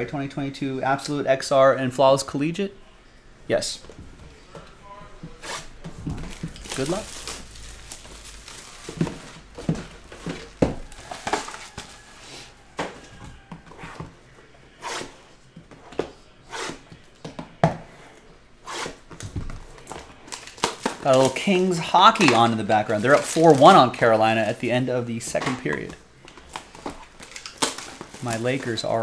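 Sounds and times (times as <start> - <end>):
plastic wrap crinkling and tearing: 5.6 - 12.2, 19.7 - 24.8, 25.6 - 29.0
cardboard boxes knocking on table: 8.8 - 11.9.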